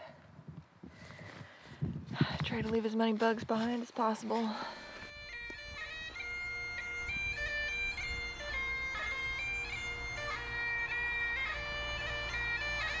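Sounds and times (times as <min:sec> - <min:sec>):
bagpipes playing a tune: 0:04.2 - 0:13.0.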